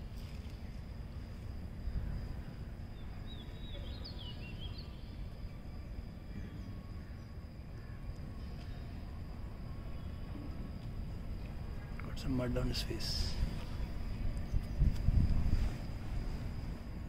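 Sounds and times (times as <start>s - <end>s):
bird chirps: 2.9s - 5.5s.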